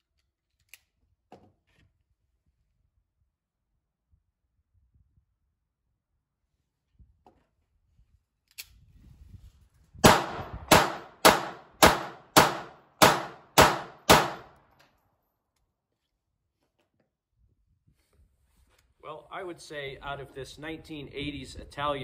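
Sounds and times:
pistol shots: 10.0s - 14.6s.

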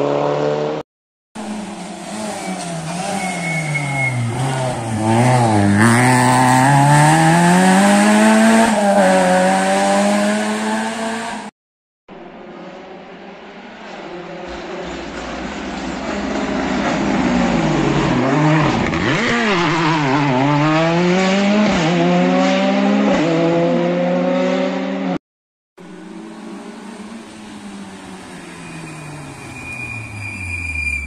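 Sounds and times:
rally car engine revving: 1.4s - 11.5s, 14.4s - 25.2s.

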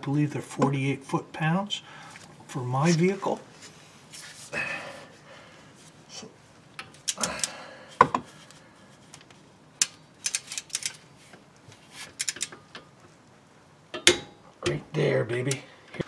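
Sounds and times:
socket wrench ratcheting: 12.2s - 12.5s.

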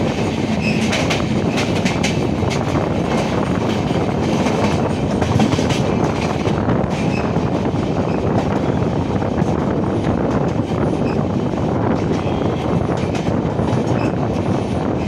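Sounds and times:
wheels clacking over rail joints: 0.0s - 8.7s
passing train rushing by: 0.0s - 15.0s
train rumble: 0.0s - 15.0s.

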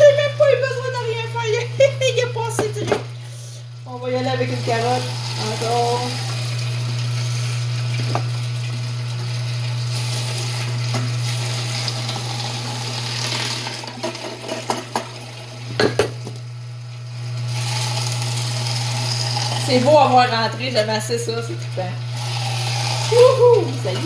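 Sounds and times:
juicer humming: 0.0s - 24.0s.

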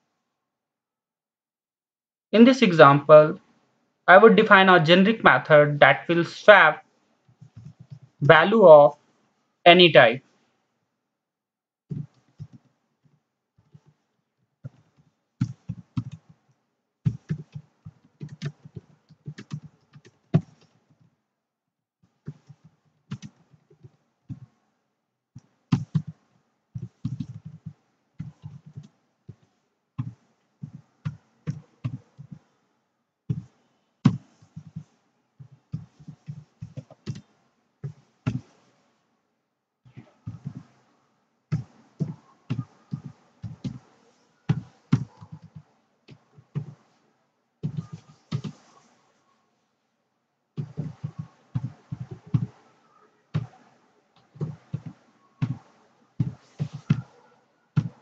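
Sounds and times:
computer keyboard typing: 14.7s - 16.4s, 17.1s - 21.0s, 22.2s - 24.5s, 25.7s - 26.2s, 26.8s - 32.4s, 34.1s - 38.5s, 41.5s - 43.9s, 44.5s - 46.8s, 47.6s - 48.8s.

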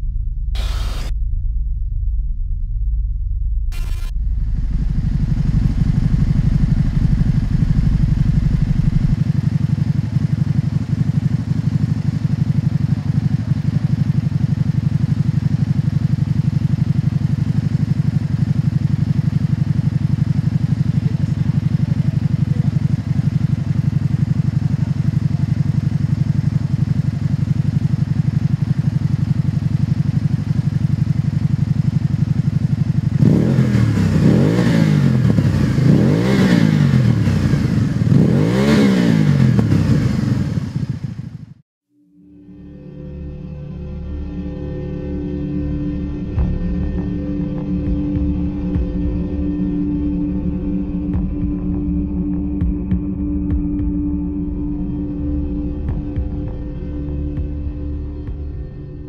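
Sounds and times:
motorcycle engine idling and revving: 0.0s - 1.1s, 3.6s - 41.6s, 42.7s - 59.0s.

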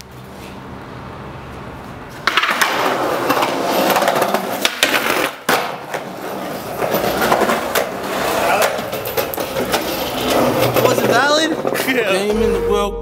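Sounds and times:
skateboard wheels rolling on concrete: 0.0s - 12.3s
skateboard clacks: 2.2s - 12.3s.

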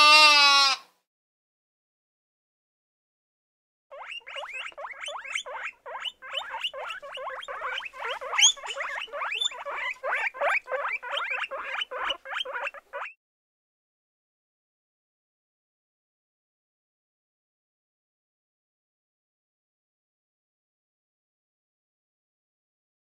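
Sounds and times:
guinea pigs squeaking: 3.9s - 13.2s.

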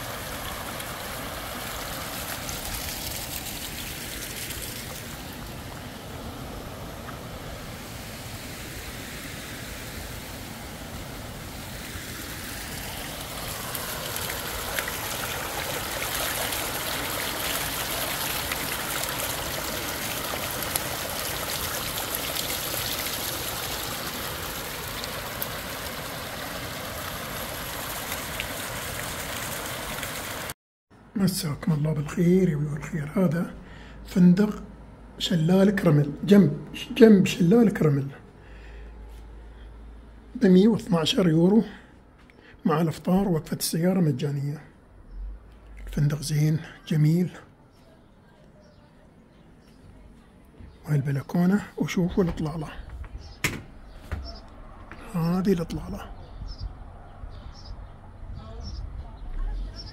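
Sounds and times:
water rushing and trickling: 0.0s - 30.6s.

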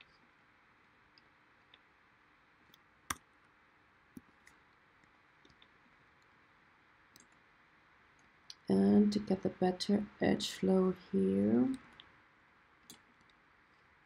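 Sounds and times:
computer mouse clicks: 7.1s - 7.4s.

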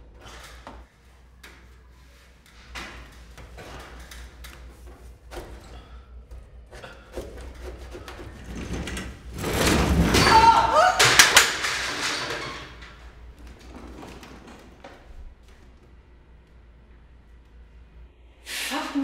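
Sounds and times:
door banging open: 8.2s - 15.1s
loud thud and clatter: 8.4s - 10.4s.

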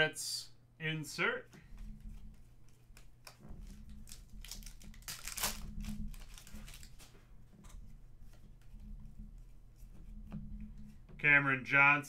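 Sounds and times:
cards clicking and rustling: 2.1s - 7.8s
foil wrapper crinkling and tearing: 2.9s - 7.2s.

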